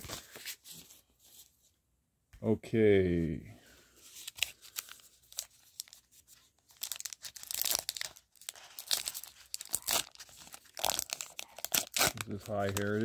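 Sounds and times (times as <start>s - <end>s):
wrapper crinkling: 4.2s - 13.0s
wrapper being torn open: 6.7s - 13.0s.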